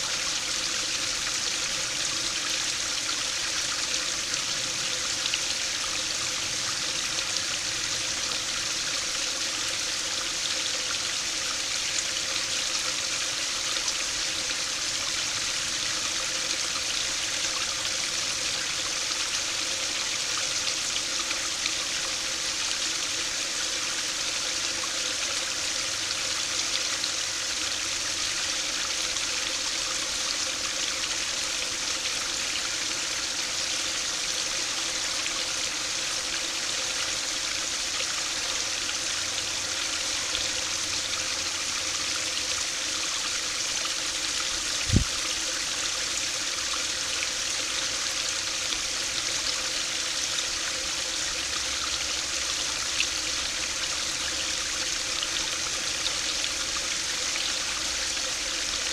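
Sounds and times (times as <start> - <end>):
stream trickling over weir: 0.0 - 58.9.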